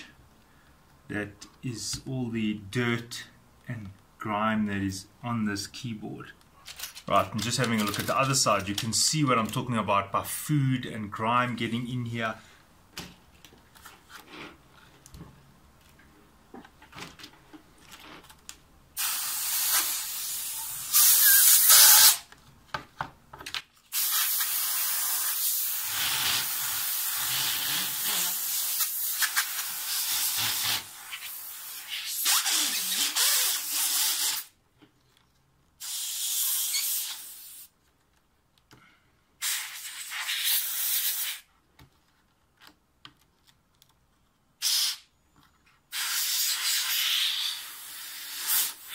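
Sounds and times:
air blow gun hissing bursts: 19.0s - 22.2s, 23.9s - 34.5s, 35.8s - 37.7s, 39.4s - 41.5s, 44.6s - 45.1s, 45.9s - 48.9s.

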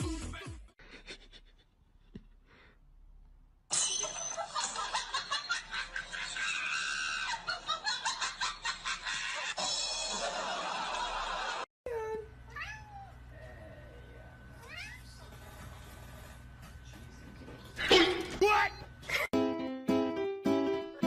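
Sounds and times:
music: 0.0s - 0.8s, 19.4s - 21.0s
person laughing: 0.4s - 1.8s, 19.0s - 19.3s.

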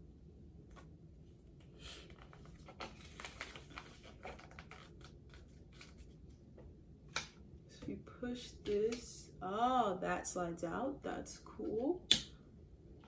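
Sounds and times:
paper rustling and crinkling: 1.9s - 6.4s.

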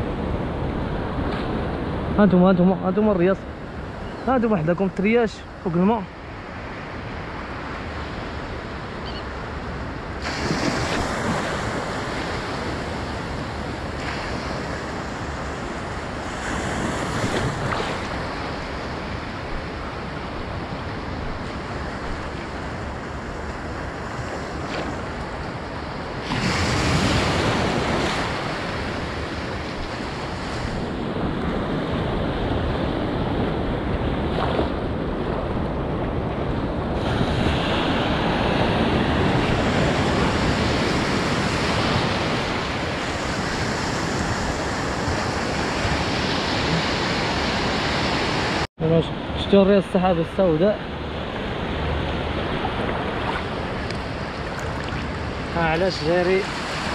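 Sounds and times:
ocean surf washing ashore: 0.0s - 56.9s
wind buffeting microphone: 6.4s - 49.6s.

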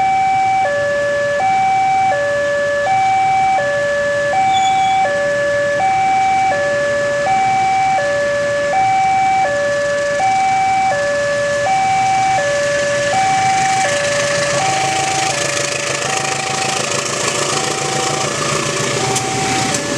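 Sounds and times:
level crossing two-tone alarm: 0.0s - 19.9s
train arriving: 4.5s - 5.0s, 12.0s - 19.9s.

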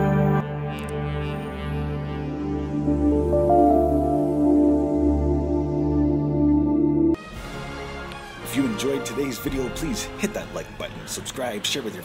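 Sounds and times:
ambient music with held tones: 0.0s - 12.0s
steady low drone: 0.5s - 7.2s.

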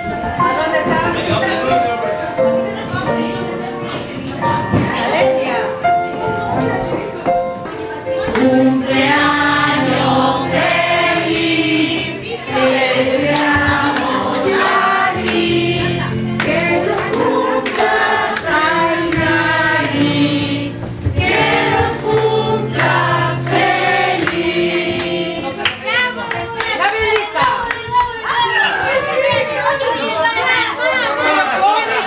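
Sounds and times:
instrumental backing: 0.0s - 29.7s
choir singing: 8.2s - 26.2s.

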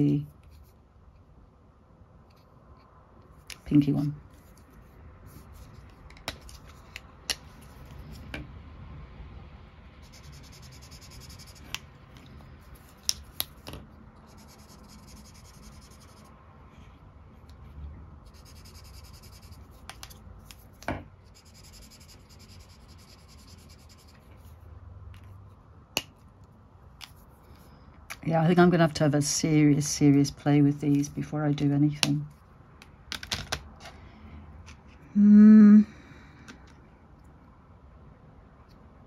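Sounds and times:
markers clicking and tapping: 5.8s - 8.4s, 10.1s - 16.3s, 18.3s - 24.3s
markers rubbing on paper: 10.0s - 11.8s, 14.2s - 16.3s, 18.3s - 19.9s, 21.3s - 24.5s.

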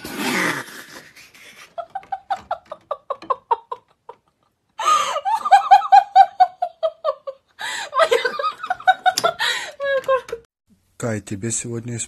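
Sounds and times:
woman laughing: 1.4s - 10.5s.

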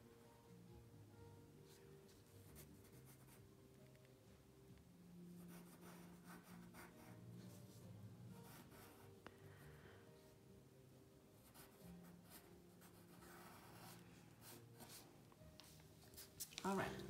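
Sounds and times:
pencil scratching on paper: 2.1s - 3.4s, 5.4s - 7.8s, 8.4s - 9.2s, 11.4s - 16.6s.

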